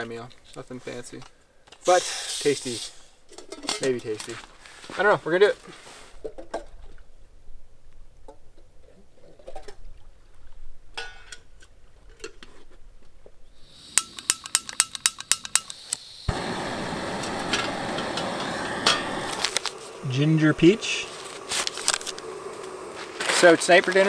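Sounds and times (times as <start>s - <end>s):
gas burner hissing: 1.8s - 3.2s, 13.5s - 24.0s
stove igniter clicking: 13.8s - 24.0s.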